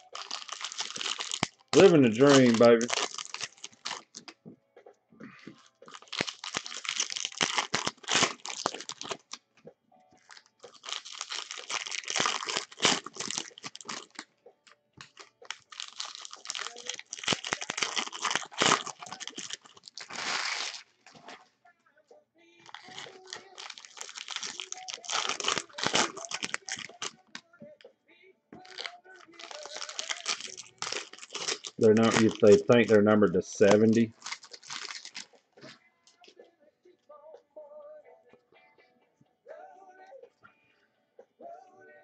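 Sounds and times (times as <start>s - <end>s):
foil wrapper tearing and crinkling: 0.0s - 4.3s, 5.6s - 9.4s, 10.2s - 14.2s, 15.0s - 21.4s, 22.6s - 27.4s, 28.6s - 35.4s.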